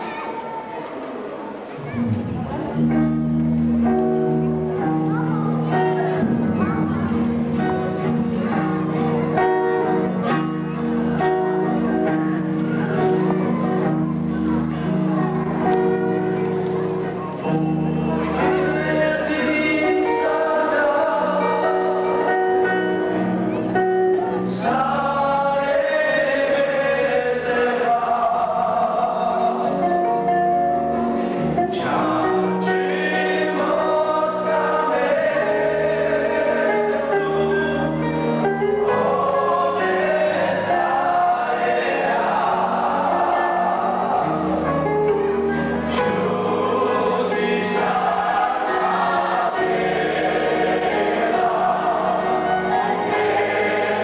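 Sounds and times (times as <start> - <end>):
instrumental accompaniment: 0.0 - 54.0
choir singing: 3.8 - 54.0.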